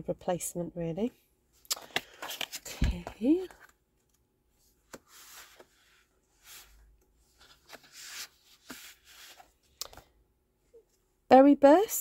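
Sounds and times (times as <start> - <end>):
cardstock sheets rustling: 4.9 - 10.1.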